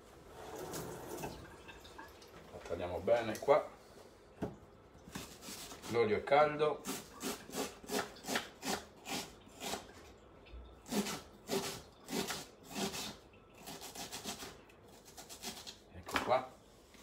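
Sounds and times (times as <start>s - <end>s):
knife slicing onion on board: 6.8s - 9.9s, 10.9s - 16.4s.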